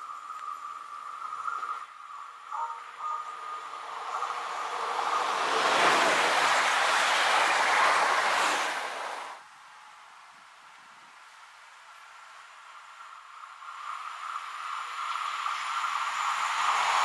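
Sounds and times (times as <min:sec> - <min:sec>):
train passing at speed: 0:01.0 - 0:09.4, 0:12.4 - 0:17.0
train wheels rushing: 0:03.3 - 0:09.4, 0:13.0 - 0:17.0.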